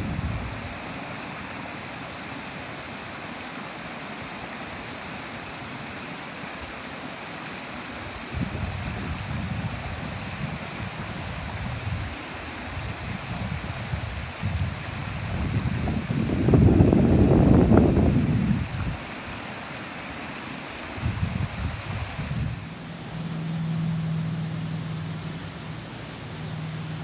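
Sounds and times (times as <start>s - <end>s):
wind buffeting microphone: 0.0s - 1.8s, 13.2s - 20.4s.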